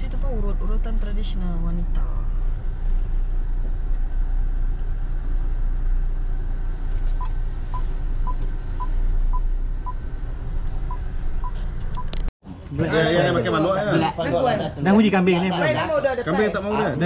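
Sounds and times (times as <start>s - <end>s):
car engine rumble: 0.0s - 17.0s
road noise inside car: 0.0s - 17.0s
parking sensor beeps: 7.2s - 10.0s, 10.8s - 12.2s.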